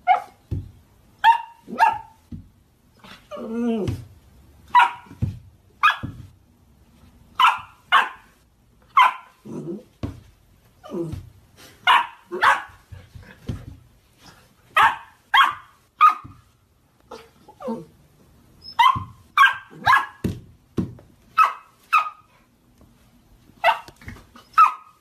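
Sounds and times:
puppy barking: 0.0s - 0.4s, 1.2s - 2.2s, 4.7s - 5.2s, 5.8s - 6.2s, 7.4s - 9.5s, 11.8s - 12.9s, 14.7s - 16.5s, 18.6s - 20.2s, 21.3s - 22.3s, 23.6s - 25.0s
puppy yelping: 7.4s - 8.3s, 8.9s - 9.8s, 18.6s - 20.2s, 21.4s - 22.3s, 23.6s - 25.0s.

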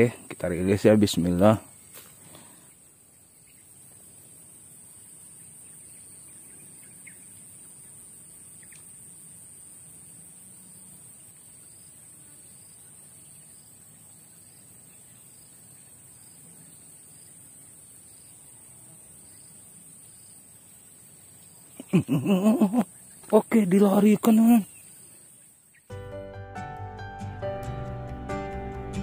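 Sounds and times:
high-pitched insect buzz: 3.2s - 25.9s.

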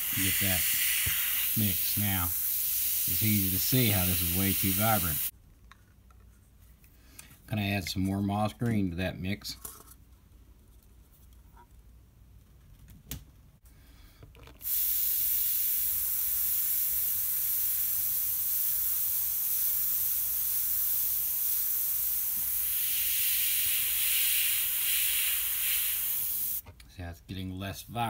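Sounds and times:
airbrush spraying hiss: 0.0s - 5.3s, 14.6s - 26.6s.

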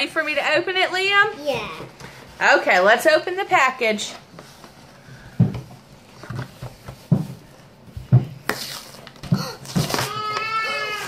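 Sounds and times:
plastic rustle: 5.9s - 11.0s.

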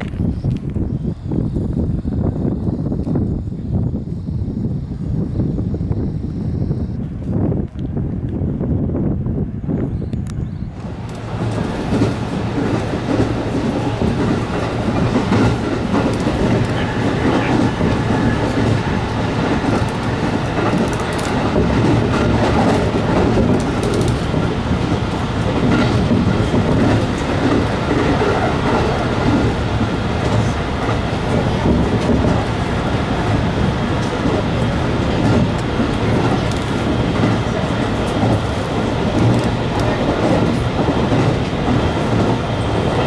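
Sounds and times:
train wheels rumbling on rail: 0.0s - 43.0s
wheels clicking over rail joints: 10.2s - 43.0s.

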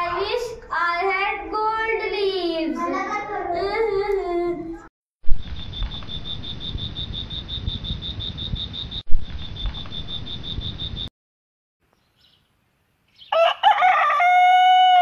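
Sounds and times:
crickets chirping: 5.4s - 11.1s.

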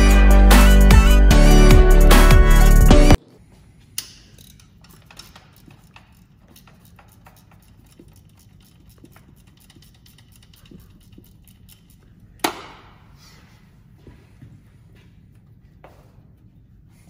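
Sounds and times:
tools clicking and tapping on metal: 4.0s - 12.8s.

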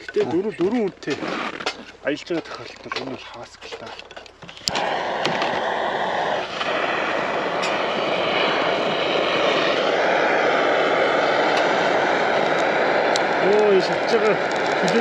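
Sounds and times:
gas torch hissing: 4.4s - 15.0s.

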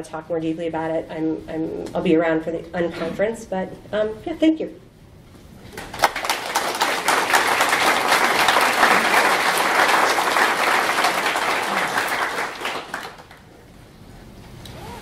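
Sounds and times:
audience applauding: 5.7s - 13.5s.

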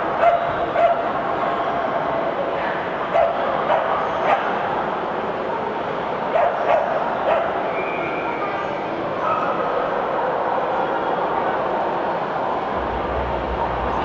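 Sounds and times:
crowd murmur in large hall: 0.0s - 14.0s
small dogs barking and yapping: 0.2s - 1.1s, 6.3s - 7.6s.

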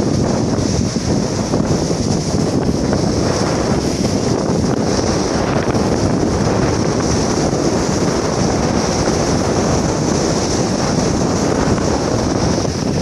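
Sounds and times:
ship engine and wake: 0.0s - 13.0s
wind on microphone: 0.0s - 13.0s.

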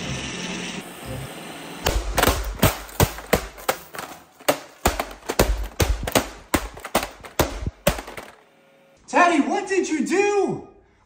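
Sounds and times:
bat knocking plastic shell: 1.9s - 8.4s.

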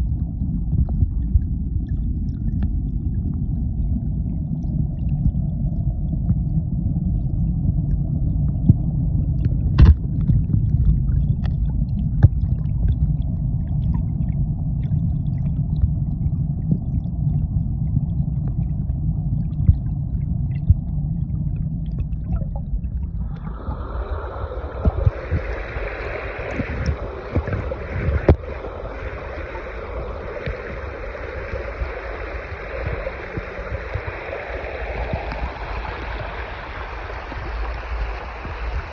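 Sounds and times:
muffled underwater rumble: 0.0s - 38.9s
shallow stream water hiss: 23.2s - 38.9s.

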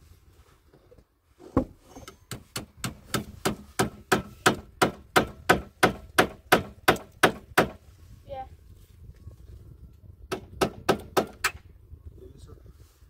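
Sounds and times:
hand tool working wood: 1.4s - 7.8s.

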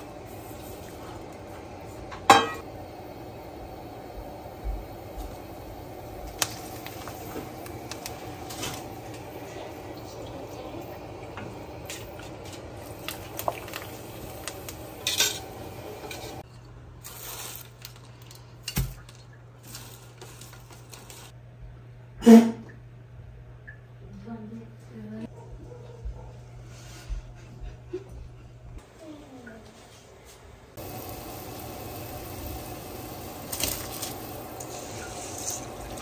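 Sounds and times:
utensils clinking against dishes: 2.1s - 2.6s, 15.0s - 16.5s.

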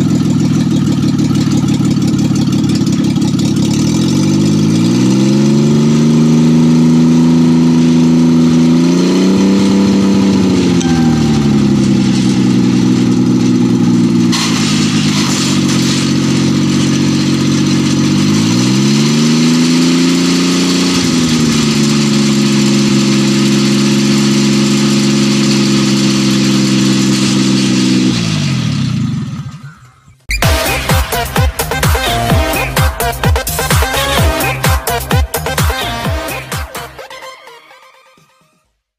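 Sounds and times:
small engine revving: 3.2s - 11.1s, 13.5s - 32.8s.

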